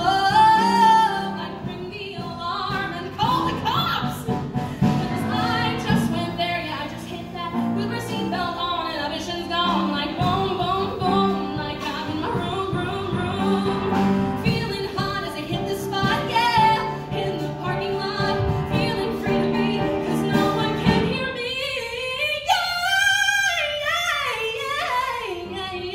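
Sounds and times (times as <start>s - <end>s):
upright piano: 0.0s - 21.8s
woman singing: 0.0s - 25.9s.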